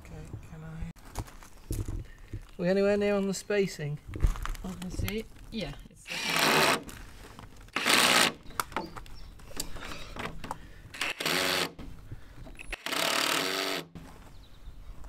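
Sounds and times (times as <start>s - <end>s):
cordless drill motor whine: 6.1s - 6.8s, 12.5s - 13.8s.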